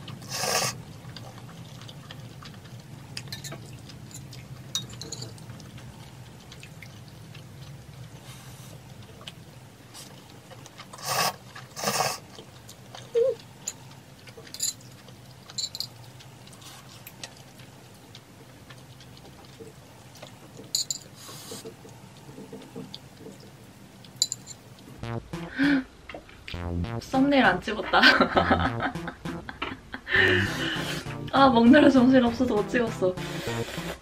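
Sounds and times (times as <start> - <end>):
faint low hum: 0.0 - 33.2
person slurping noodles: 0.3 - 0.8, 11.0 - 12.2, 33.2 - 34.0.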